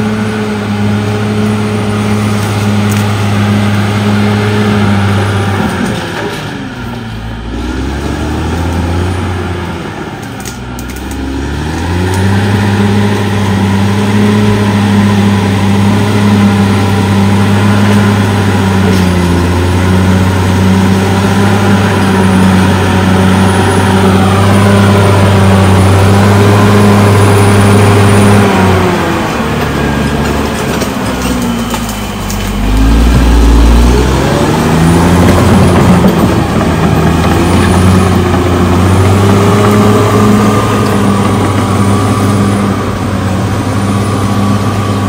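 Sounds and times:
blade pushing soil: 0.0s - 6.7s, 7.6s - 45.0s
bulldozer diesel engine working: 0.0s - 45.0s.

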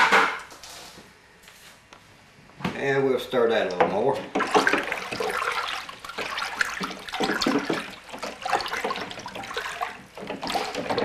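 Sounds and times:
water sloshing in plastic cooler: 3.6s - 11.0s.

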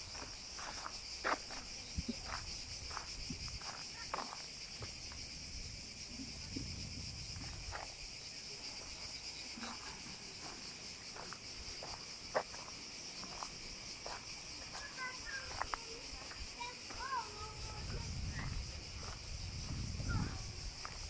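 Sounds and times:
footsteps on dry dirt: 0.0s - 5.2s, 9.6s - 21.0s
high-pitched insect chorus: 0.0s - 21.0s.

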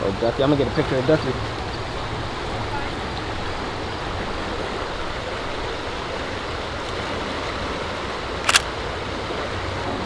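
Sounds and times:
river rushing over its bed: 0.0s - 10.0s
camera shutter and film advance: 8.4s - 8.7s.

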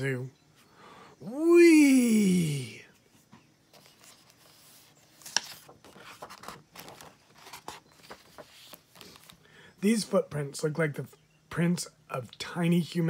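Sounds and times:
book page turning: 3.7s - 9.4s.

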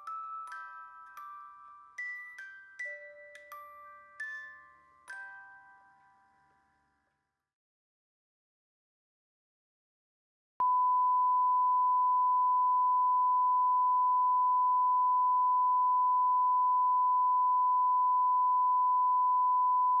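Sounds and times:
steady test tone beep: 10.6s - 20.0s.

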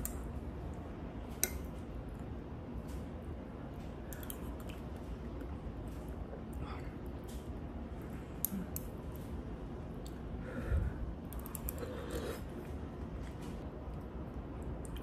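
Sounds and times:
soft eating sounds: 0.0s - 15.0s.

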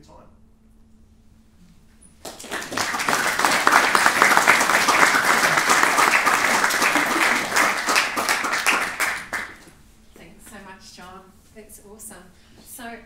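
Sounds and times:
audience applauding: 2.2s - 9.7s.

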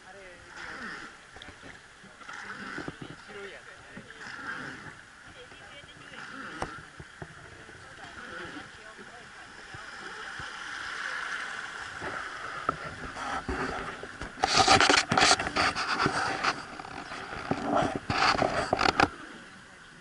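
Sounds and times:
wooden boat under way: 0.0s - 20.0s
loud scraping and rubbing: 4.1s - 5.0s, 11.9s - 19.1s.

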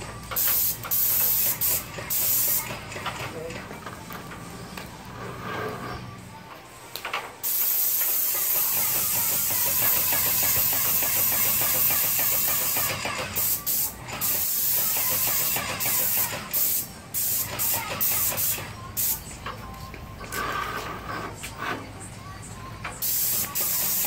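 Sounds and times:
paint spray gun hissing: 0.4s - 2.7s, 7.4s - 19.2s, 23.0s - 24.0s.

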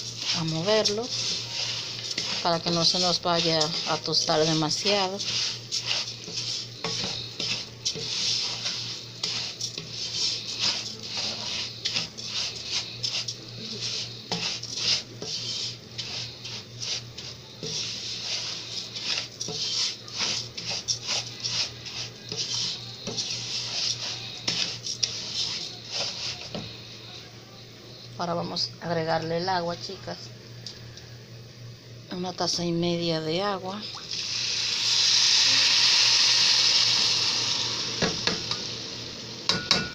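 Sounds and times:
spoon scraping a pot: 0.0s - 26.8s
rice grains rustling: 0.0s - 27.0s.

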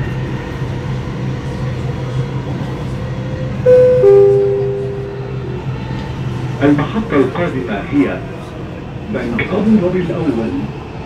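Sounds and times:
metro train humming: 0.0s - 11.0s
two-note falling chime: 3.7s - 5.9s.

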